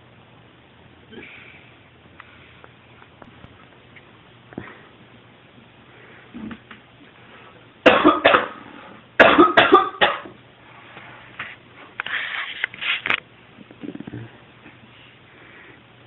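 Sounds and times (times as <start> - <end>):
person coughing: 7.9 - 8.6, 9.2 - 10.3.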